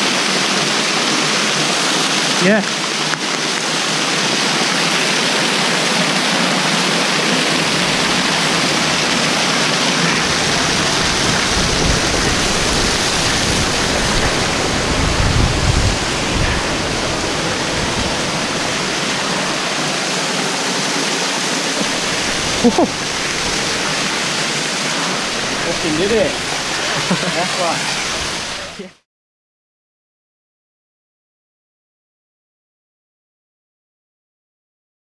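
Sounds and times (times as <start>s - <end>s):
waterfall rushing over rocks: 0.0s - 29.0s
deep rumble: 7.3s - 19.6s, 21.8s - 27.1s.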